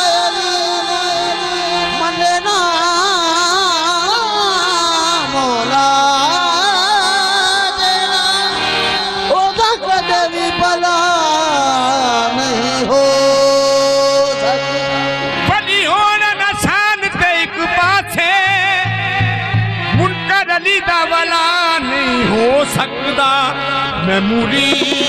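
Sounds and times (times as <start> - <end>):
harmonium drone: 0.0 - 25.0
man singing devotional song: 0.0 - 25.0
drum strokes: 24.6 - 25.0.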